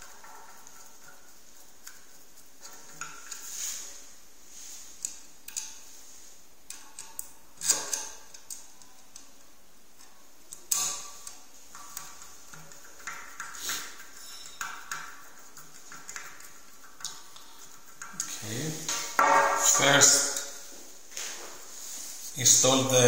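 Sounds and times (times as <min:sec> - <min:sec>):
metal bracket clattering: 0:18.9 - 0:20.6.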